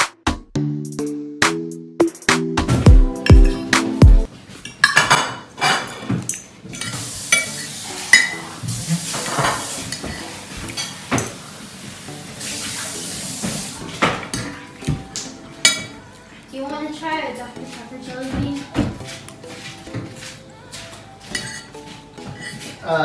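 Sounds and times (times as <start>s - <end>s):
cutlery scraping on a plate: 4.6s - 11.4s, 18.4s - 22.8s.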